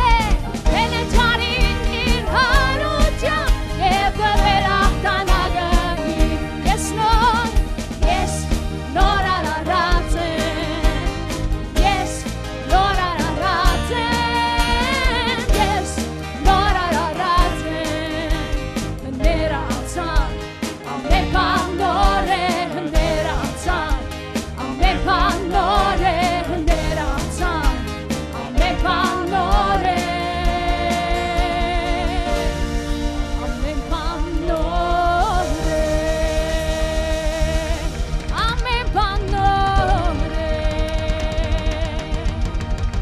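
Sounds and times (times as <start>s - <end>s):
person singing with vibrato: 0.0s - 32.8s, 33.4s - 42.4s
band with steady beat: 0.0s - 43.0s.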